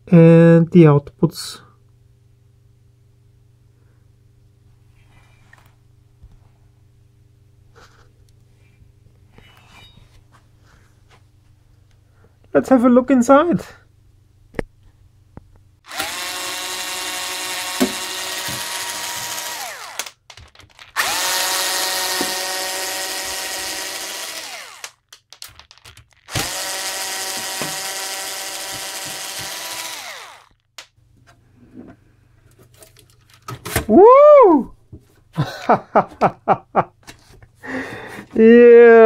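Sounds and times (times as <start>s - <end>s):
power drill whining: 15.9s - 20.1s, 20.8s - 25.0s, 26.3s - 30.6s.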